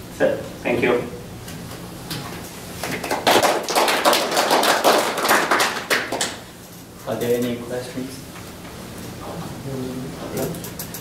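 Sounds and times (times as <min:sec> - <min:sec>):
small audience applauding: 0:02.8 - 0:06.4.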